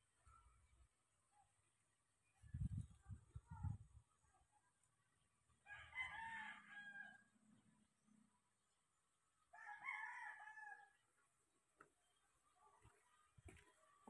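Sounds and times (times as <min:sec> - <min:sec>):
faint rooster crowing: 0:05.6 - 0:07.4, 0:09.5 - 0:11.0.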